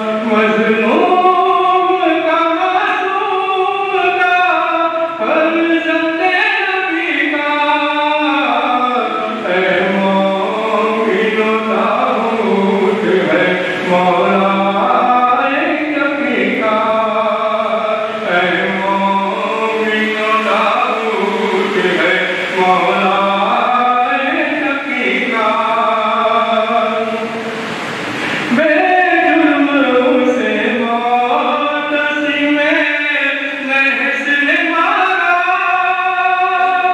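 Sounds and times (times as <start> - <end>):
voices chanting a lament: 0.0 - 36.9.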